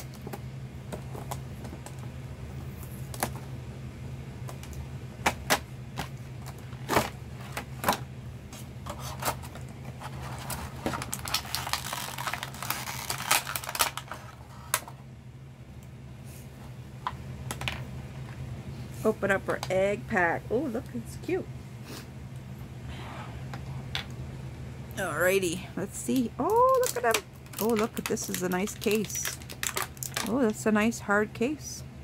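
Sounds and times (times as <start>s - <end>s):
plastic packaging crackling: 8.8s - 15.0s, 26.2s - 30.6s.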